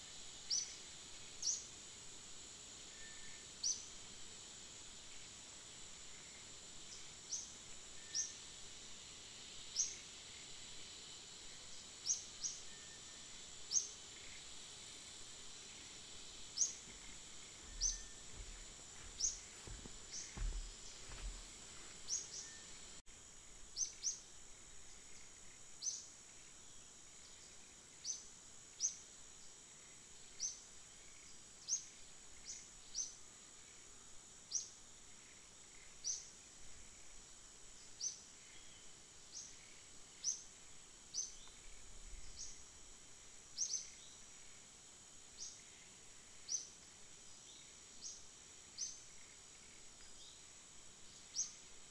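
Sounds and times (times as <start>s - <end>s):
high-pitched insect drone: 0.0s - 37.2s
bird chirping: 16.6s - 21.4s
soft low thumps: 16.7s - 22.2s.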